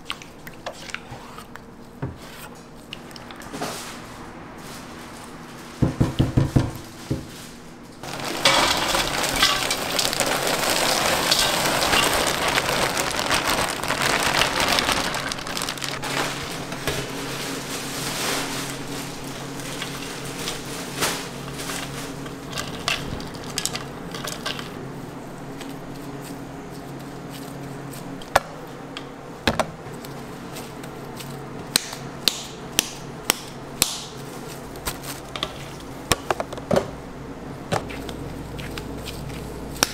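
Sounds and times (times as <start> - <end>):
hands kneading raw meat: 37.8 - 39.9.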